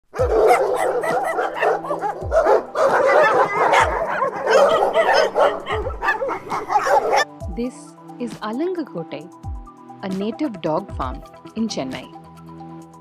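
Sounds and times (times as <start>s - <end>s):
dogs barking and yipping: 0.1s - 7.4s.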